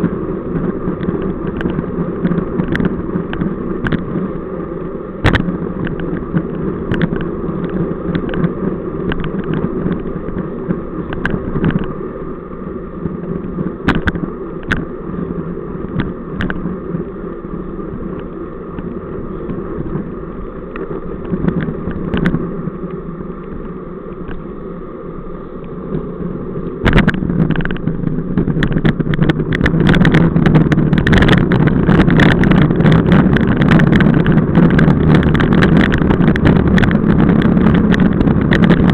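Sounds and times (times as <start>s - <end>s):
road noise: 0.0s - 38.9s
wind rumble on microphone: 0.0s - 38.9s
clicks and rattles: 26.8s - 38.9s.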